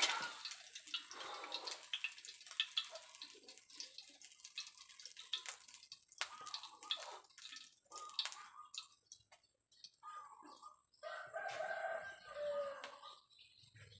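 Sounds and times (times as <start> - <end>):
oil crackling and popping in a wok: 0.0 - 11.0
chickens clucking: 6.2 - 14.0
rooster crowing: 11.0 - 13.2.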